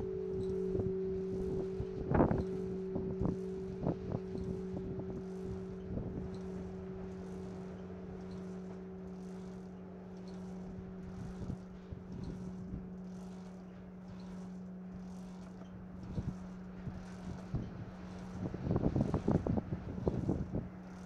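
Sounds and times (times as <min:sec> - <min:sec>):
church bell humming: 0:00.0 - 0:13.8.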